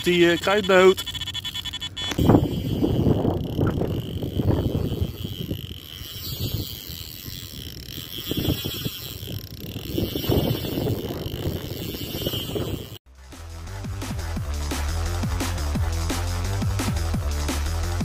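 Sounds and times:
fishing reel whirring: 0.0s - 13.0s
wind buffeting microphone: 2.1s - 13.0s.

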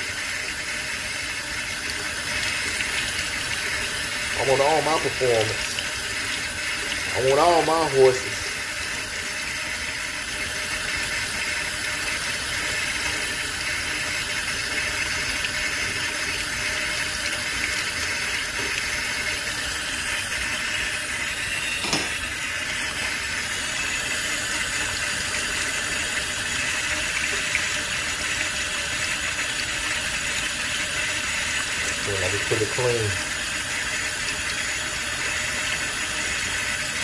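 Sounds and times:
faucet water splashing into sink: 0.0s - 37.0s.

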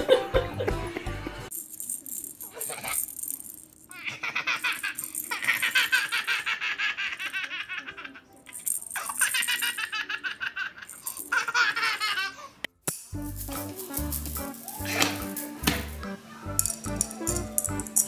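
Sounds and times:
baby giggling: 3.9s - 12.6s, 13.7s - 15.3s.

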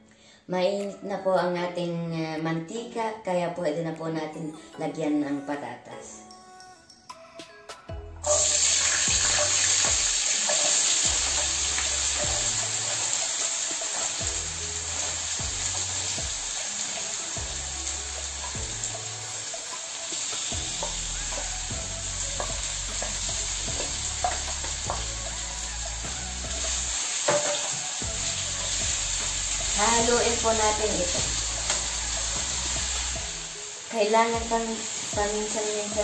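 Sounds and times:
potatoes sizzling in hot oil: 8.2s - 36.0s
wooden spoon tapping and scraping pan: 22.4s - 25.2s, 27.2s - 27.8s.

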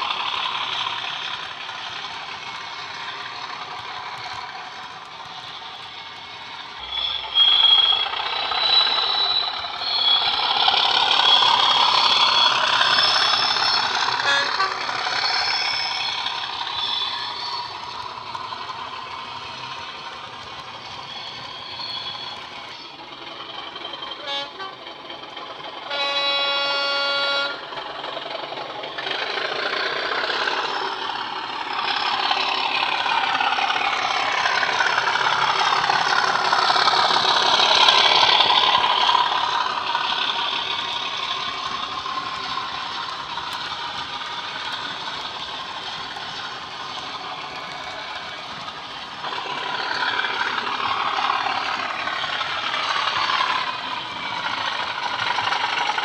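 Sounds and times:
diesel engine sound: 0.0s - 56.0s
locomotive horn blast: 14.2s - 14.9s, 24.2s - 24.8s, 25.9s - 27.6s.

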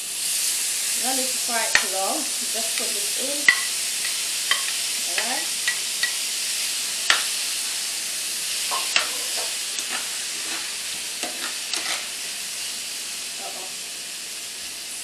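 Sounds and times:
vegetables sizzling in frying pan: 0.0s - 15.0s
spatula scraping and tapping pan: 2.8s - 6.3s, 7.0s - 7.4s, 8.6s - 12.2s.

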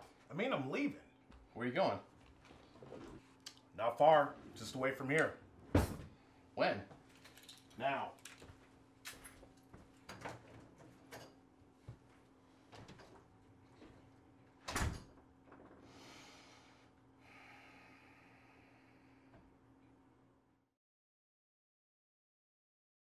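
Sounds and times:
door shutting with thump: 5.7s - 6.1s.

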